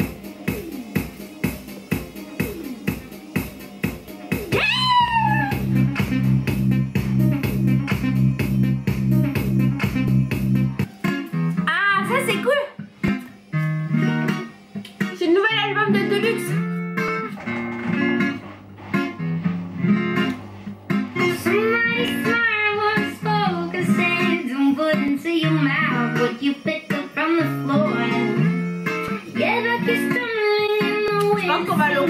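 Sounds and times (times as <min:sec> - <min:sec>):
strummed guitar chords: 0:05.4 - 0:32.0
person singing: 0:21.2 - 0:32.0.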